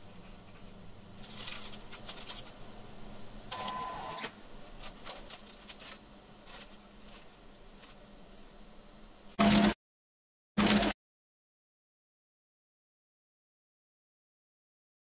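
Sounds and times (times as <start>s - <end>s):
crumb coating rustling: 0.0s - 2.8s, 4.5s - 8.6s.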